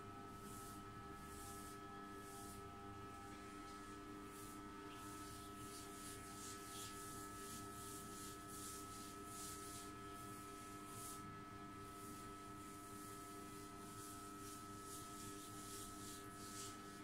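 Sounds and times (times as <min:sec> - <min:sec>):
faint steady hum: 0:00.0 - 0:17.0
fingers rubbing wet hair: 0:03.6 - 0:09.9.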